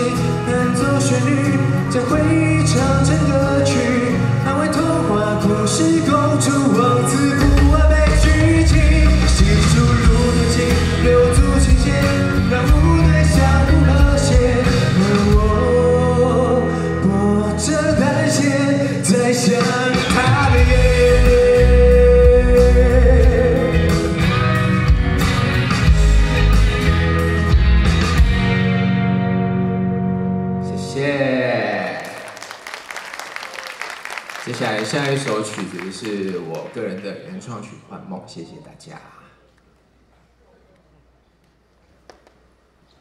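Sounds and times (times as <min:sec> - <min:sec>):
person singing into microphone: 0:00.0 - 0:24.3
rock backing track: 0:06.8 - 0:16.0, 0:19.0 - 0:30.6.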